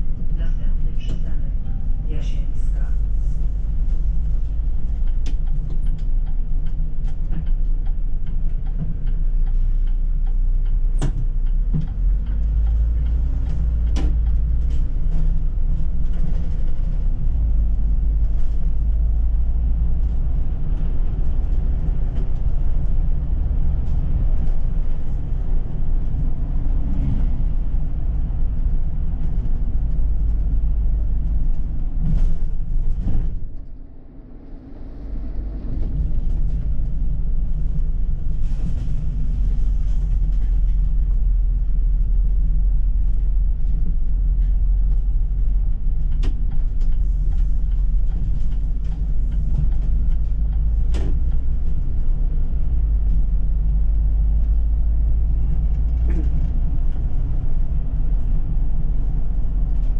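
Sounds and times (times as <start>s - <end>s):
bus engine and road rumble: 0.0s - 59.9s.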